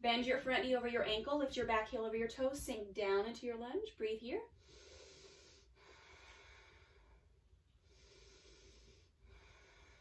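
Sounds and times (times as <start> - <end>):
woman breathing slowly: 4.6 - 10.0.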